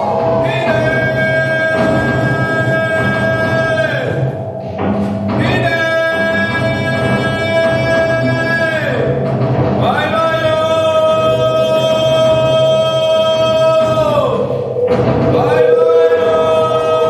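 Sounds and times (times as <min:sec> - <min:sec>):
person singing long notes: 0:10.1 - 0:17.0.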